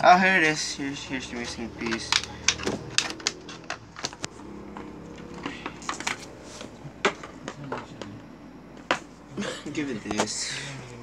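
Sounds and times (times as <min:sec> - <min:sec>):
hard plastic clicking and tapping: 0:01.8 - 0:06.2, 0:07.0 - 0:09.1.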